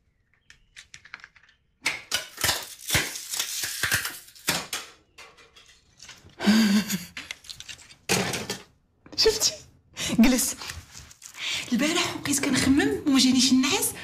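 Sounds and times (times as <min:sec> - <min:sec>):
plastic discs cracking: 0:00.4 - 0:05.0.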